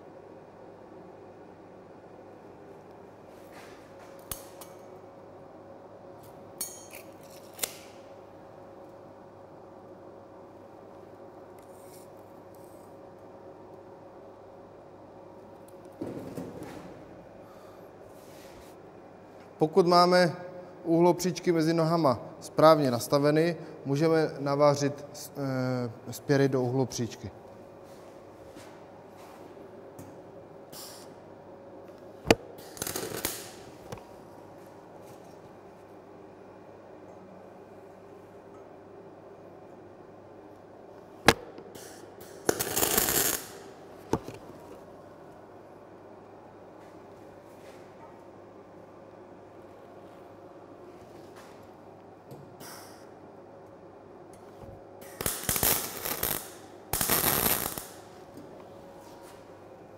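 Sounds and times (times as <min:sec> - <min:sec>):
welding arc crack and spattering: 0:32.6 - 0:33.6, 0:42.4 - 0:43.6, 0:55.0 - 0:58.1
welding torch click: 0:41.3 - 0:43.6, 0:55.0 - 0:58.0.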